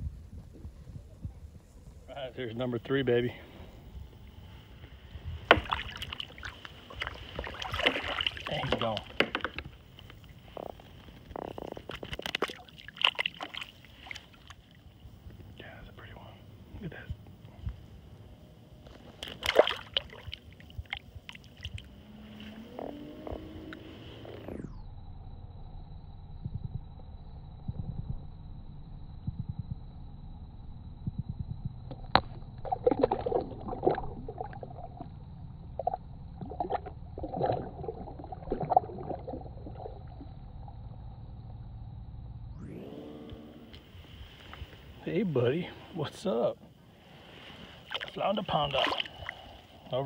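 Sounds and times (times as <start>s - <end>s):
steady low rumble: 0.0s - 50.0s
fish splashing into water: 5.5s - 9.6s, 11.8s - 14.6s, 19.2s - 22.6s, 32.2s - 35.0s, 47.8s - 49.5s
handling clicks and knocks on kayak: 8.7s - 9.7s
hand splashing in water: 19.2s - 20.3s
low rising tone: 21.8s - 31.9s, 34.2s - 44.5s.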